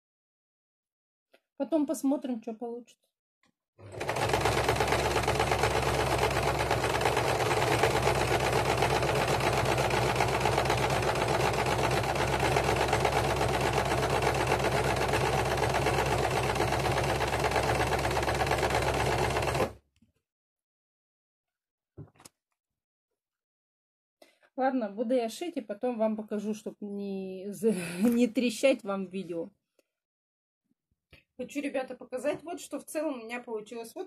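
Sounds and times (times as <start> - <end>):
electric sewing machine stitching: 3.8 - 19.8.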